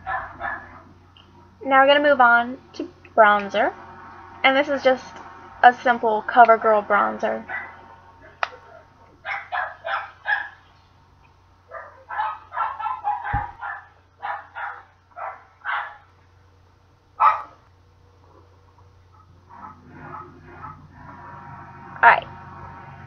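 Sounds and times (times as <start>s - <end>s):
dog barking: 0.0s - 0.9s, 7.5s - 7.8s, 9.2s - 10.6s, 11.7s - 16.1s, 17.2s - 17.6s.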